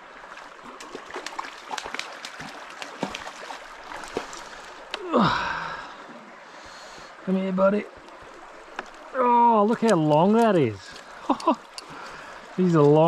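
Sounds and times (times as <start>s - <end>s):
fish splashing in water: 0.3s - 4.9s.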